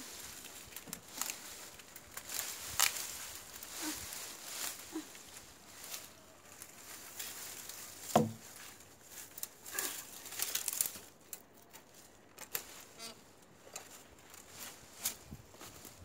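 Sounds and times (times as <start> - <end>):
dry brush rustling and crackling: 0.0 - 16.0
sharp knock: 8.2 - 8.4.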